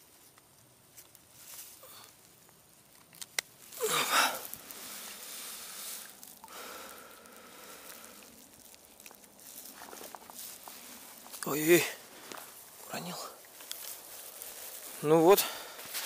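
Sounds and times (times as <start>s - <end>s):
handling rustling: 7.8s - 16.0s.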